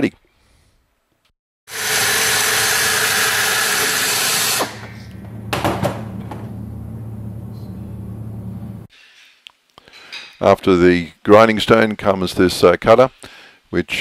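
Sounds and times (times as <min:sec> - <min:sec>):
air drill whirring: 0:01.7 - 0:05.2
low hum: 0:04.9 - 0:08.9.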